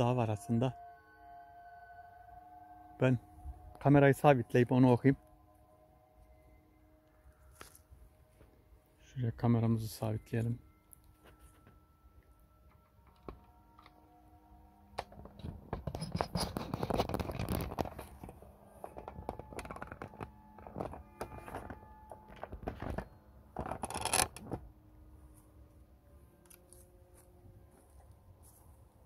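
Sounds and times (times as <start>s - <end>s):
camera being handled scraping: 15.8s - 24.6s.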